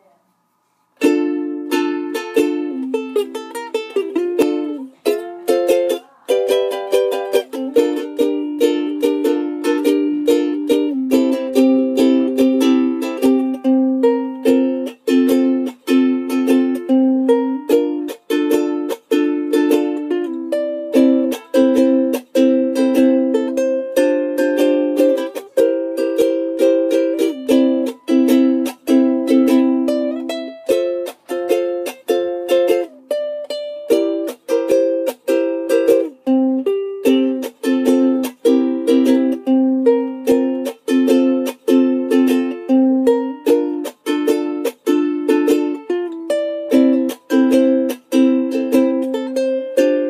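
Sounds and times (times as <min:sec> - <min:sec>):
solo ukulele playing: 0:01.0 - 0:50.0.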